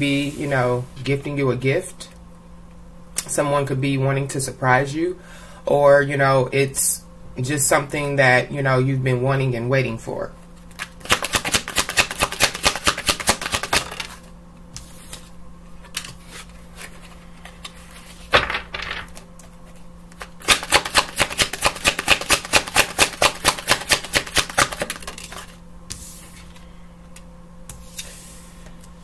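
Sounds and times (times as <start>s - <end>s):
cards being shuffled: 10.6s - 28.8s.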